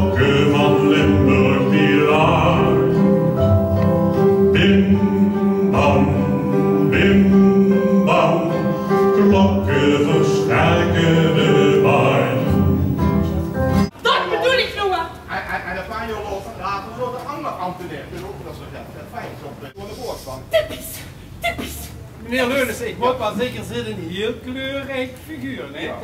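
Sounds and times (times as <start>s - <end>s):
man singing: 0.0s - 13.0s.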